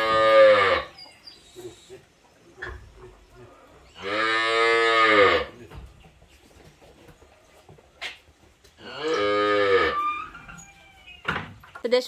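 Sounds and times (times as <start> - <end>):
cow mooing: 0.0 - 0.9, 4.0 - 5.6, 8.8 - 10.3.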